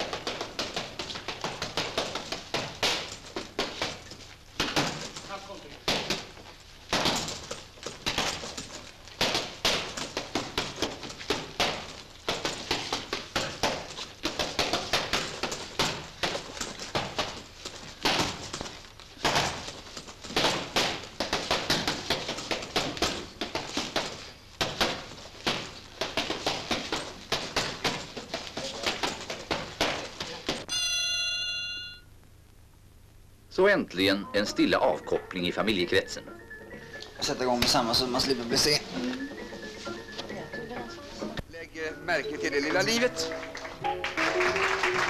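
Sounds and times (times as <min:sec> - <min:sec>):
gloves punching heavy bag: 0:00.0 - 0:30.7.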